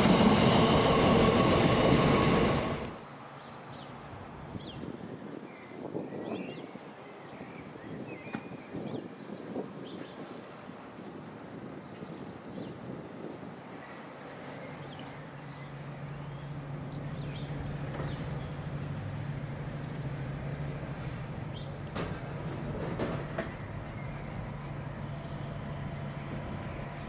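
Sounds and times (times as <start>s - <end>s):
train passing drone: 0.0s - 4.2s, 13.4s - 27.0s.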